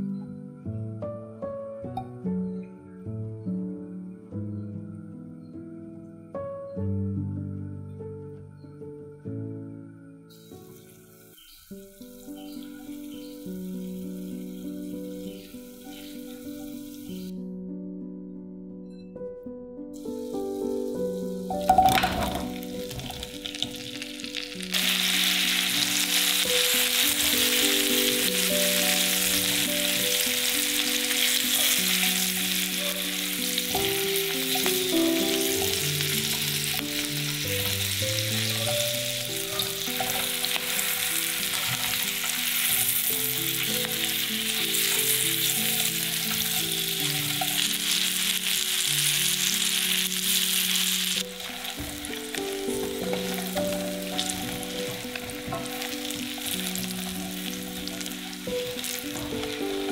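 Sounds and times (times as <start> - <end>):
soft background music: 0.0 - 59.9
food sizzling in frying pan: 10.4 - 17.3, 20.0 - 59.9.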